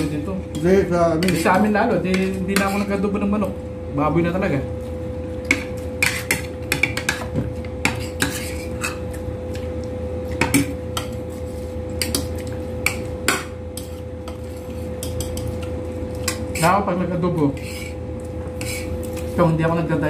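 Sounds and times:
steady hum: 0.0s - 20.0s
metal utensils clinking on dishes: 12.0s - 16.8s.

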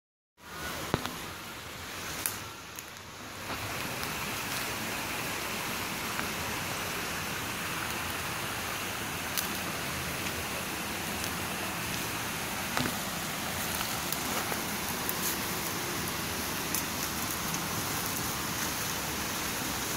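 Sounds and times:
footsteps on sticks and dry leaves: 2.0s - 4.9s, 9.2s - 19.0s
waterfall rushing: 3.3s - 19.9s.

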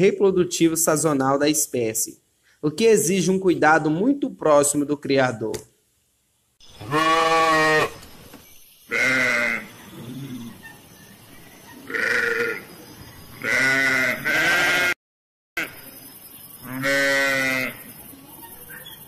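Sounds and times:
sheep bleating: 6.8s - 8.0s, 8.9s - 9.7s, 11.9s - 12.6s, 13.4s - 15.0s, 16.6s - 17.8s.

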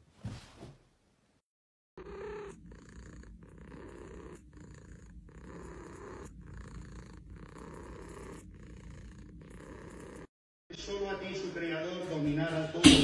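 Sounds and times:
cat purring: 2.0s - 10.3s.

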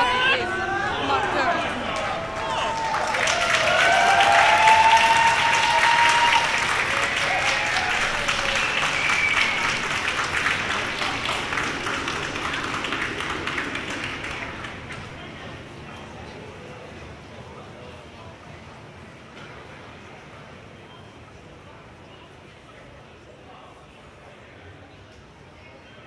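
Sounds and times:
voices whooping: 0.0s - 15.4s
crowd applauding: 0.0s - 15.8s.

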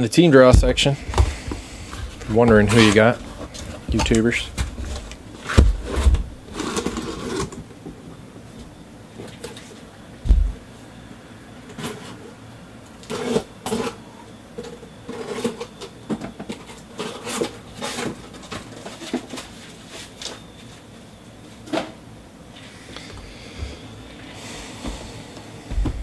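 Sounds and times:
handling knocks and clicks: 2.2s - 5.8s
cardboard box thump: 10.3s - 10.6s.

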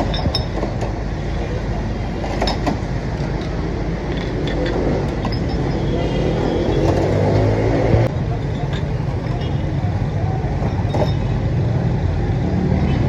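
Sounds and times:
glass bottles clinking on glasses: 0.0s - 2.8s, 3.4s - 7.2s, 8.2s - 11.4s
street traffic rumble: 0.0s - 13.0s.

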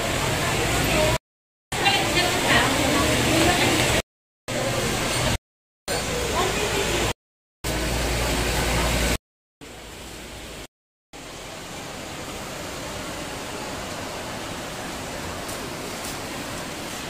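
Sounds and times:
room noise hiss: 7.7s - 17.0s.

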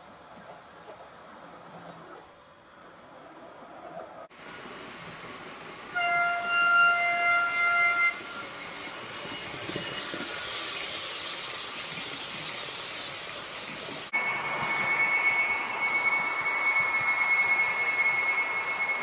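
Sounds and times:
model train rushing along track: 0.0s - 19.0s
high whine of locomotive: 2.4s - 19.0s
model train horn: 5.9s - 8.2s.

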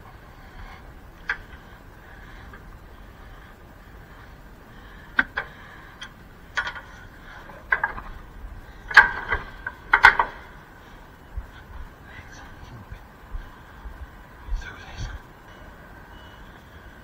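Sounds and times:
faint steady hum: 0.0s - 17.0s
sharp clicks and knocks: 5.0s - 10.6s.

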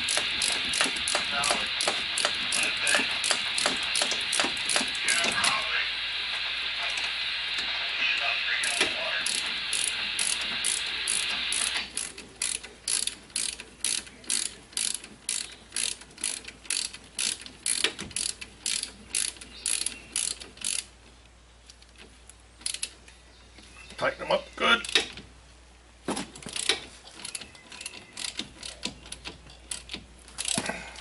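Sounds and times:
socket ratchet clicking: 0.0s - 4.9s, 9.3s - 20.9s, 22.6s - 23.0s, 26.5s - 30.6s
steady rasping noise: 0.0s - 21.1s.

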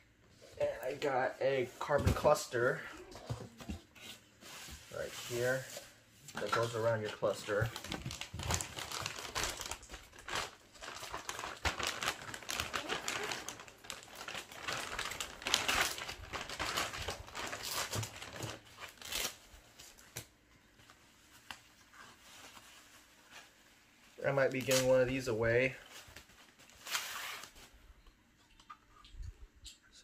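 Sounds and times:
plastic bag crinkling: 6.4s - 19.4s.

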